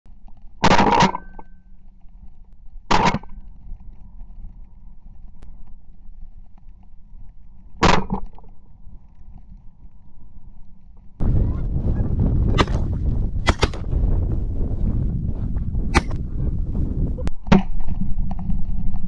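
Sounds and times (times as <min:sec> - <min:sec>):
shotgun blasts: 0:12.5 - 0:13.9, 0:15.9 - 0:16.2.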